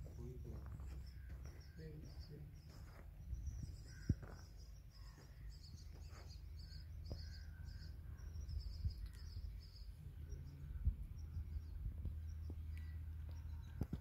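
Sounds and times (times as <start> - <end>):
bird calls: 0.0 - 14.0
high chirping: 0.0 - 14.0
low wind-like rumble: 6.6 - 14.0.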